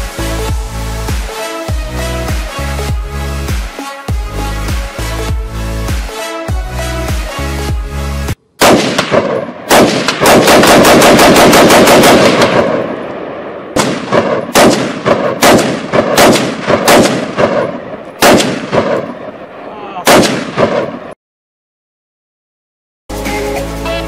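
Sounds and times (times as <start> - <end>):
automatic gunfire burst: 8.6 - 12.8, 13.8 - 19.1, 20.1 - 20.9
rifle gunshots: 8.6 - 21.1.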